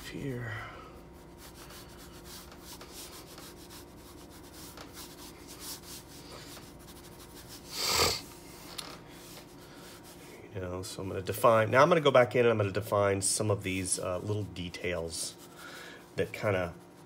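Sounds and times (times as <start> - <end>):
pencil scratching on paper: 1.2 - 8.3.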